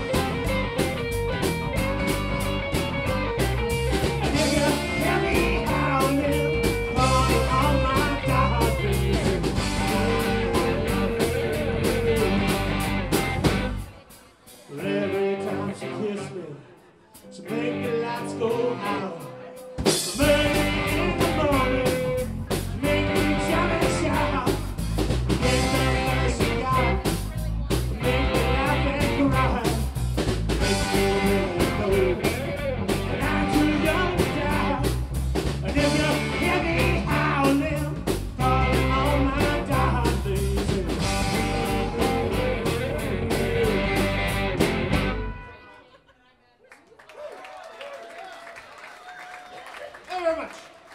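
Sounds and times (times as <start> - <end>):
blues band playing: 0.0 - 16.4, 17.2 - 45.9
man singing: 4.0 - 13.0, 14.6 - 44.5.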